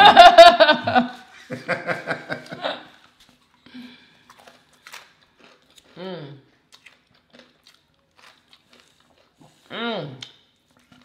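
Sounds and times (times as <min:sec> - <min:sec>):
person laughing: 0:00.0 - 0:02.9.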